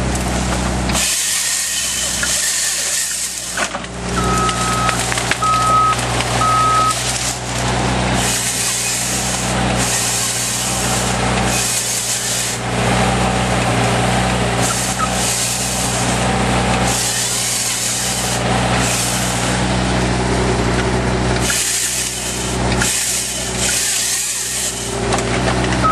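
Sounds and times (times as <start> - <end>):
excavator diesel engine running: 0.0 - 25.9
chainsaw hissing: 0.9 - 25.1
reversing alarm beeping: 4.1 - 7.0, 14.7 - 15.2.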